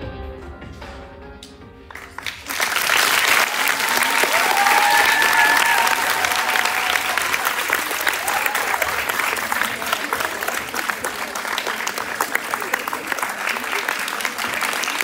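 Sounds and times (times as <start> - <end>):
audience applauding: 1.9 - 15.0.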